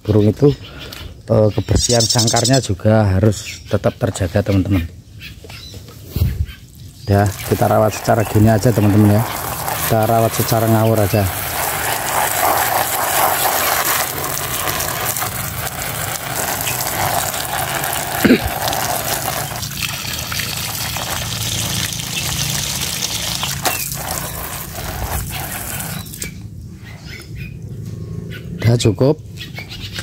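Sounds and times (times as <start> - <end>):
water spray hissing and splashing: 7.1 - 26.4.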